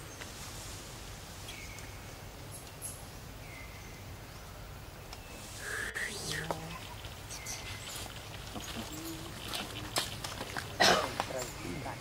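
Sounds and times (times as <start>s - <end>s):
faint high bird chirps: 1.4s - 8.0s.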